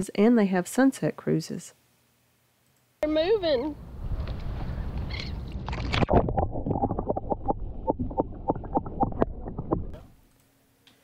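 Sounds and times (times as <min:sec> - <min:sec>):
underwater low rumble: 0:03.9 - 0:10.2
underwater ticks and pops: 0:05.6 - 0:10.0.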